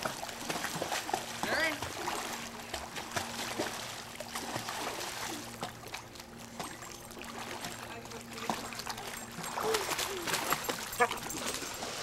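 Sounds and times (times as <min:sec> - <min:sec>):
pool water splashing: 0:00.0 - 0:12.0.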